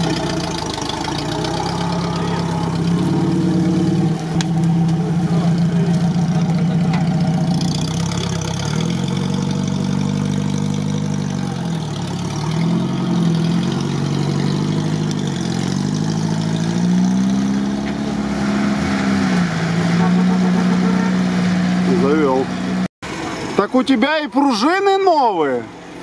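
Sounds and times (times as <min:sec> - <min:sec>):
engine revving: 0:00.0 - 0:22.9.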